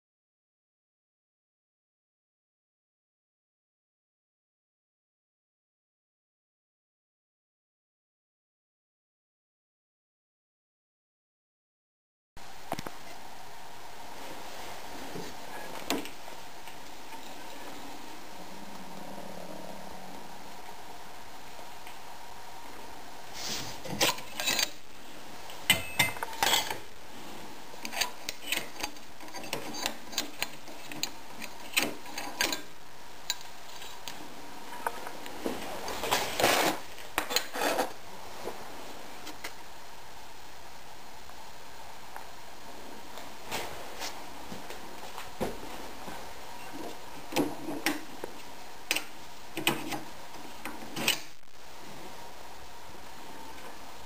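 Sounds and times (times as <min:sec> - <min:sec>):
metal clicks and scrapes of pipe bender: 0:24.0 - 0:24.8.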